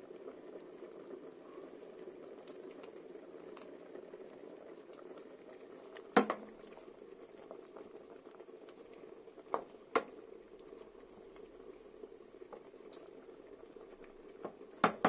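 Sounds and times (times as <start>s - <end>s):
sauce bubbling in a pot: 0.0s - 15.0s
spoon knocking against pot: 6.2s - 6.4s, 14.8s - 15.0s
wooden spoon stirring: 8.7s - 15.0s.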